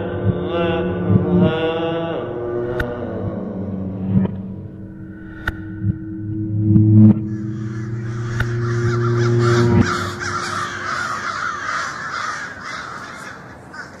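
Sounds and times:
low steady hum: 0.0s - 14.0s
crows cawing: 7.2s - 14.0s.

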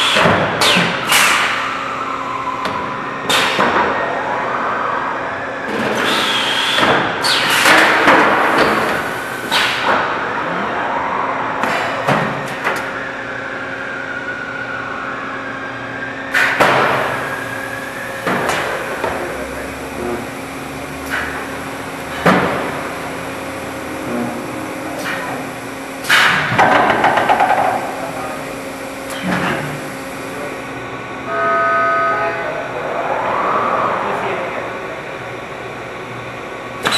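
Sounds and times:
machine hum: 0.0s - 36.9s
machinery clanks and knocks: 24.0s - 27.9s.

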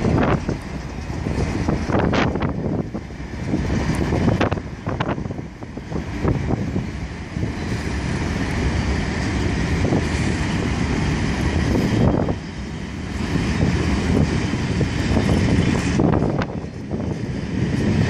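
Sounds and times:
wagons clicking and clattering: 0.0s - 2.8s
train wheels rumbling on rails: 0.0s - 18.0s.

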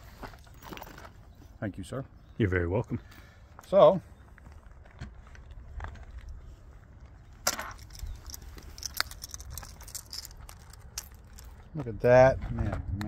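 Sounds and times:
metal cartridges clinking: 7.4s - 11.7s.

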